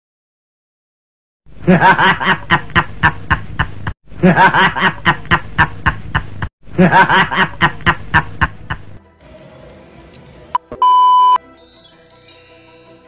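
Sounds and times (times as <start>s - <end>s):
man laughing heartily: 1.6s - 9.0s.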